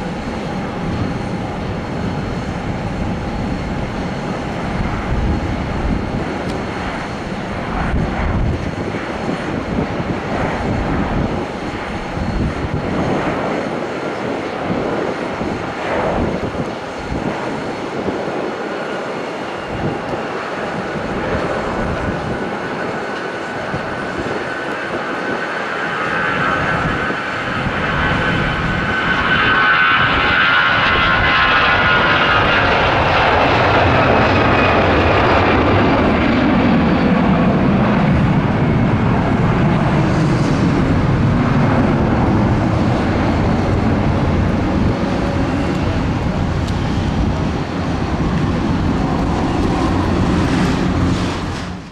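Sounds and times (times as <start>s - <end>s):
high engine whine: 0.0s - 51.9s
jet engines rumbling: 0.0s - 51.9s.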